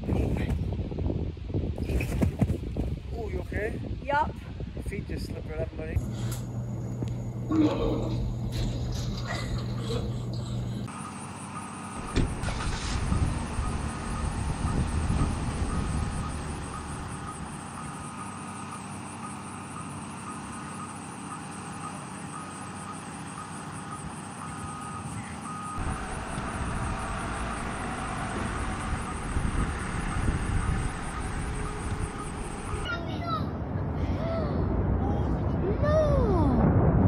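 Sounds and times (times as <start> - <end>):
outdoor background noise: 0.0 - 37.0
low rumble: 5.9 - 10.9, 12.0 - 17.6, 25.8 - 32.9, 33.6 - 37.0
high electronic beeping: 6.0 - 32.9.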